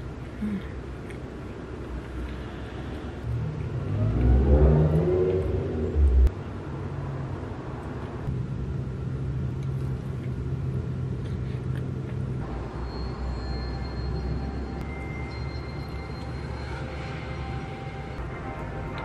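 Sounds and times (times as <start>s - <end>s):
engine revving: 3.2s - 6.3s.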